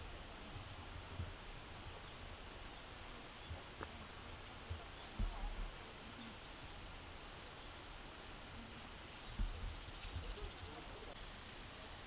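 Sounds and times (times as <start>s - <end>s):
insects chirping: 2.4s - 11.2s
thumps on microphone: 4.7s - 5.8s, 9.3s - 10.4s.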